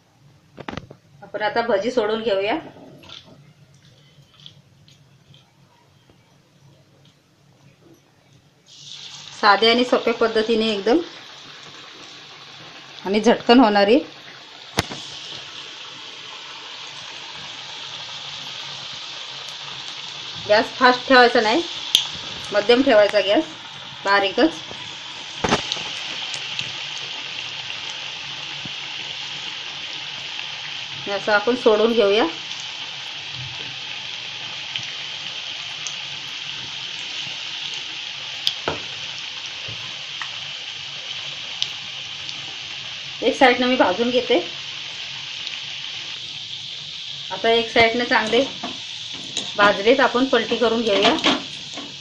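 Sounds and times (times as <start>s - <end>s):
fritters sizzling in hot oil: 8.7s - 52.0s
oil popping: 14.2s - 18.0s, 24.6s - 29.1s.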